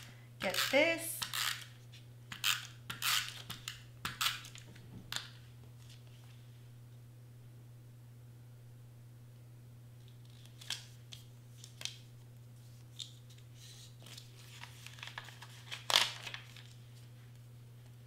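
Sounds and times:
paper rustling and crinkling: 10.0s - 12.0s, 12.6s - 17.4s.

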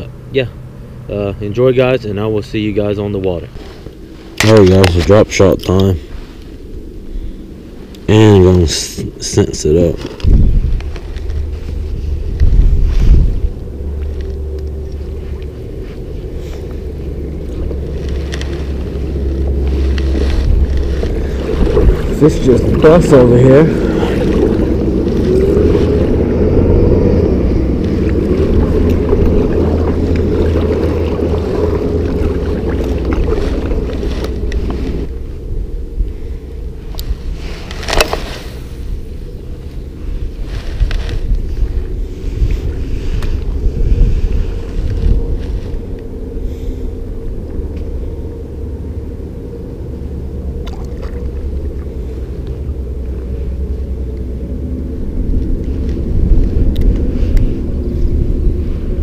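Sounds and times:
wind rumble on microphone: 0.0s - 59.0s
paddle splashes and drips: 27.9s - 35.0s, 50.6s - 53.1s.

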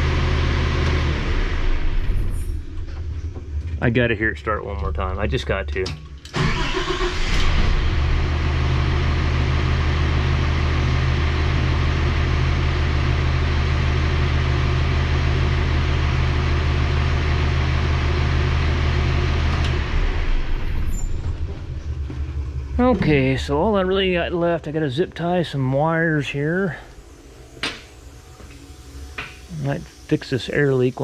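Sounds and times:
diesel engine starting and idling: 0.0s - 31.0s.

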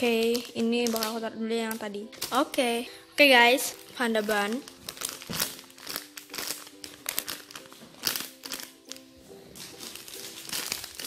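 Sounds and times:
background music with held notes: 0.0s - 11.0s
squishy toys crinkling and rustling: 3.7s - 11.0s.

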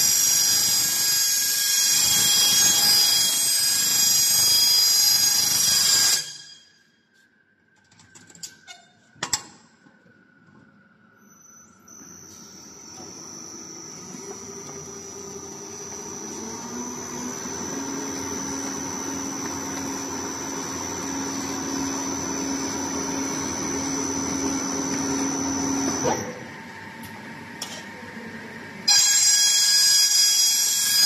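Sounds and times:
duct forming machine running: 12.4s - 29.3s.

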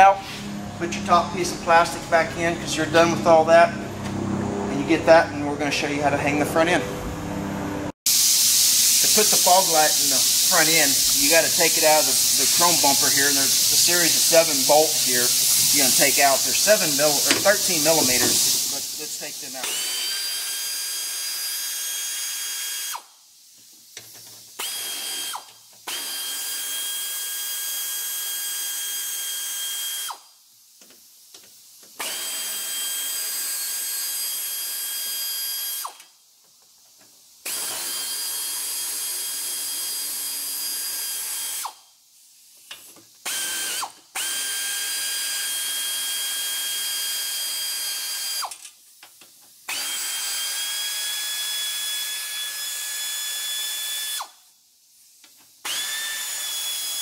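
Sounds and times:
air ratchet whine and hiss: 8.1s - 57.0s.

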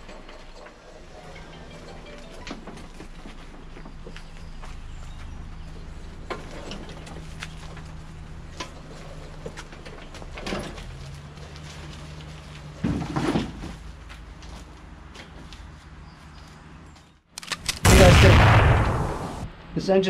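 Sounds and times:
tyres rolling over concrete: 0.0s - 15.1s.

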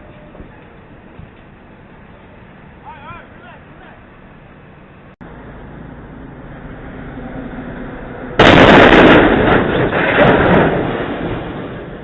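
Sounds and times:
loud explosion-like blast: 8.3s - 12.0s.

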